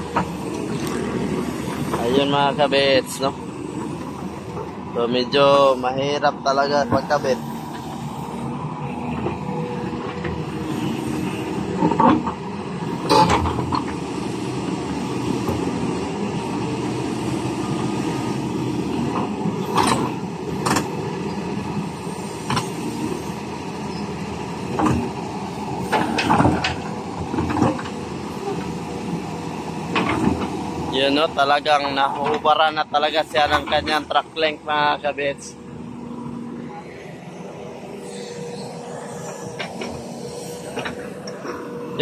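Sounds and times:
diesel engine running: 0.0s - 42.0s
steel track clanking: 24.7s - 42.0s.

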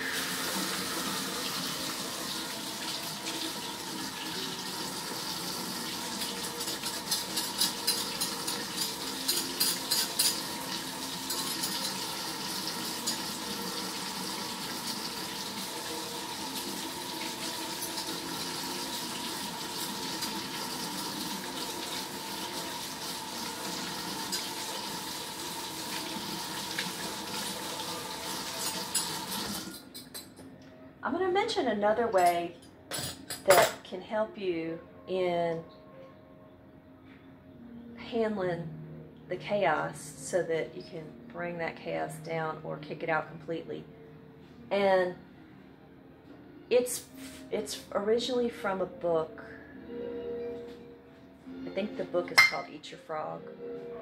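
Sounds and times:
faucet running into sink: 0.0s - 29.8s
dishes clinking: 6.2s - 10.6s, 11.2s - 12.1s, 32.1s - 33.8s, 52.3s - 52.7s.

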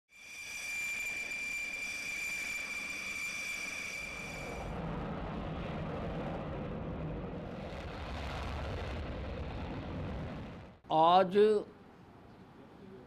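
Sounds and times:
jet engine whine while taxiing: 0.2s - 4.8s
jet taking off: 0.2s - 10.8s.

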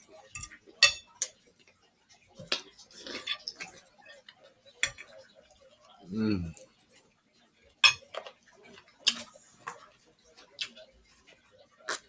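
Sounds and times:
forks clicking on plates: 0.2s - 1.7s, 2.4s - 5.2s, 7.8s - 9.9s.

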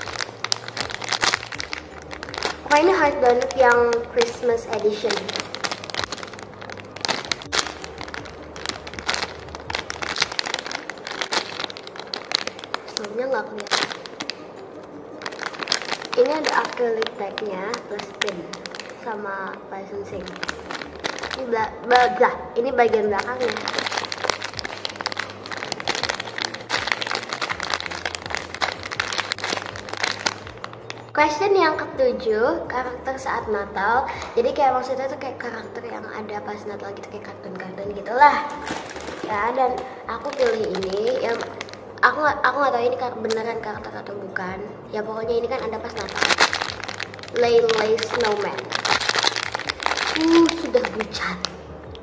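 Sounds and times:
plastic bag crinkling: 0.0s - 14.5s, 15.1s - 31.2s, 38.2s - 42.2s, 43.2s - 43.7s, 45.4s - 51.6s.

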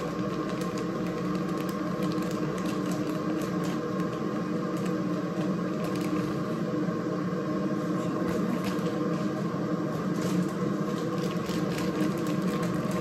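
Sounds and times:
plastic bag crinkling: 0.0s - 6.5s, 10.2s - 13.0s
steady low hum: 0.0s - 13.0s.

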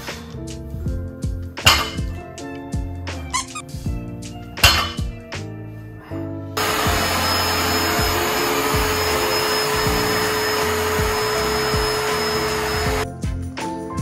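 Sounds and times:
robot vacuum running: 6.6s - 13.0s.

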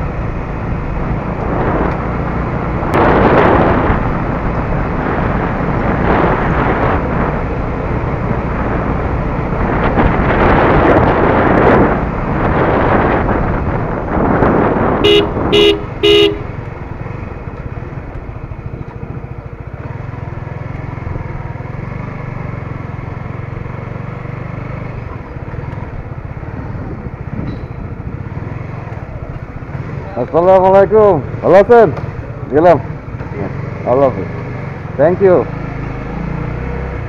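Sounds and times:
motorcycle engine: 0.0s - 37.0s
wind on microphone: 0.6s - 17.4s, 25.0s - 28.3s
horn toots: 15.0s - 16.6s.

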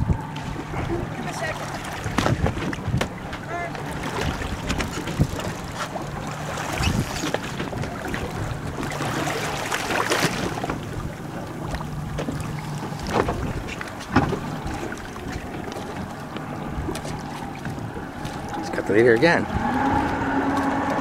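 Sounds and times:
boat motor running: 0.0s - 21.0s
water noise: 0.0s - 21.0s
wind buffeting microphone: 0.0s - 21.0s
short knocks or splashes: 0.4s - 10.9s, 11.7s - 16.0s.

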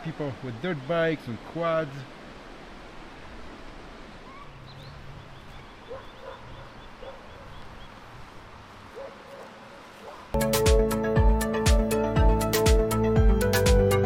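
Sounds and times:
faint bird calls: 3.9s - 8.2s.

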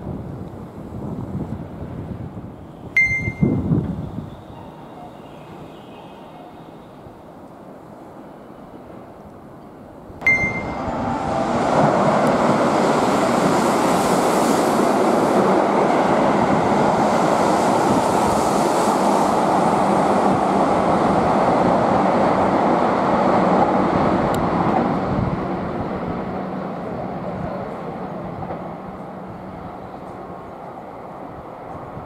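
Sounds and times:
train passing rush and rumble: 0.0s - 32.0s
short high tone: 3.0s - 3.7s, 10.2s - 11.6s.

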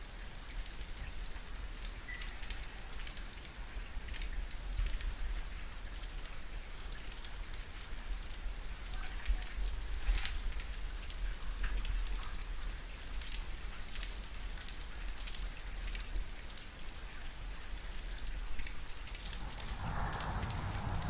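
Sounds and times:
steady rain falling: 0.0s - 21.0s
low rumble: 19.2s - 21.0s.

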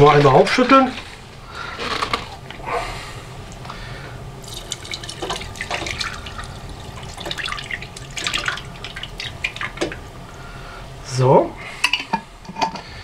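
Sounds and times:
liquid pouring and gurgling: 4.4s - 10.0s.

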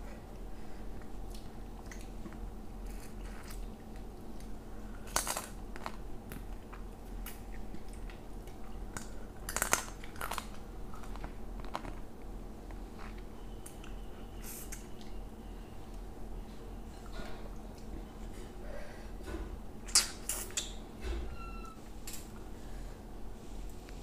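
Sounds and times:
chewing and crunching: 0.9s - 15.2s.

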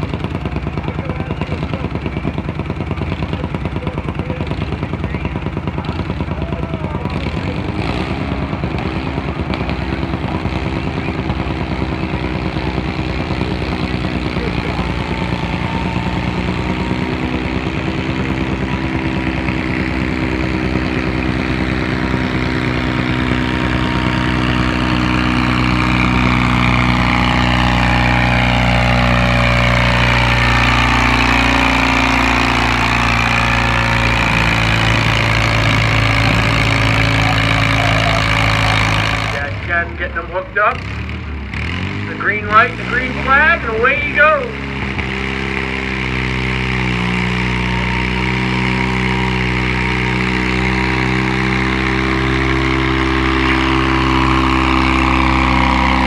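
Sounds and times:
tractor engine under load: 0.0s - 56.0s
rising tone: 24.8s - 40.2s.

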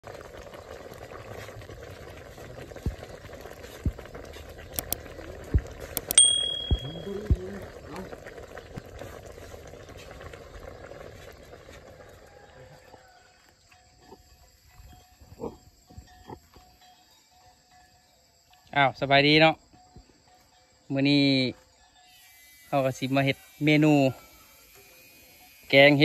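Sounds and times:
curry bubbling in a pot: 0.0s - 6.0s, 7.1s - 13.2s
sharp clicks: 4.7s - 5.0s, 5.9s - 7.0s
bell ding: 6.0s - 7.3s.

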